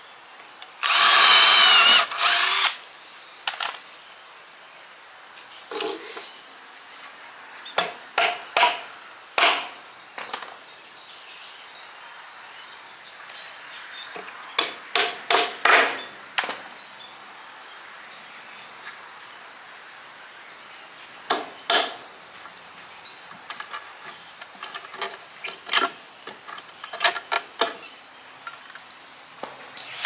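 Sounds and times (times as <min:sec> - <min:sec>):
hammer striking nails into wood: 0:07.8 - 0:09.8, 0:14.6 - 0:16.0, 0:21.3 - 0:22.0.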